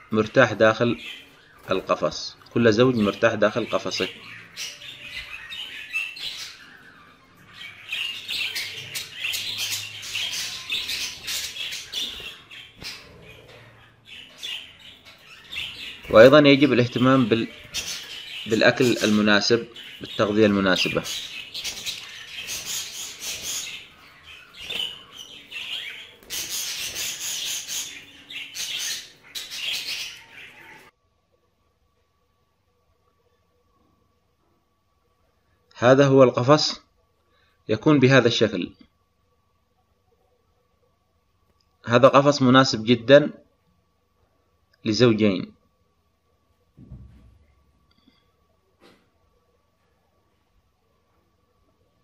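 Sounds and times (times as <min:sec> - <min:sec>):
budgerigars chattering: 0:02.7 - 0:30.9.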